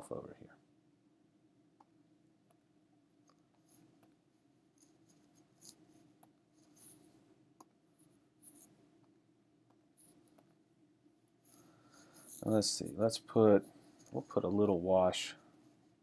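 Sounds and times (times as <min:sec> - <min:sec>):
low steady hum: 0:00.0 - 0:16.0
stylus scratching on tablet: 0:03.5 - 0:04.1, 0:04.8 - 0:07.2, 0:08.0 - 0:08.8, 0:09.8 - 0:16.0.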